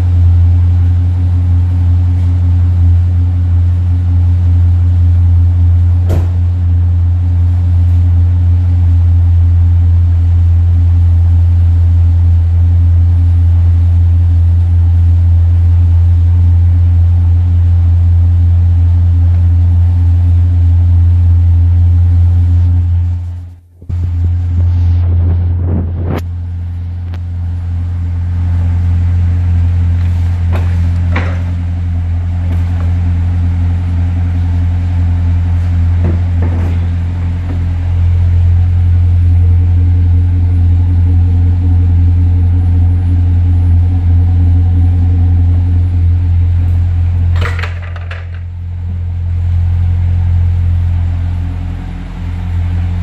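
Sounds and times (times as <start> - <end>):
car engine idling: 0.0 - 53.0.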